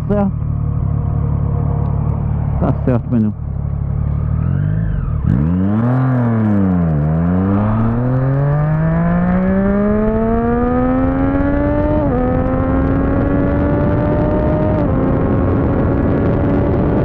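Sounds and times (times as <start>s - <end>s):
motorcycle engine accelerating: 0.0s - 17.0s.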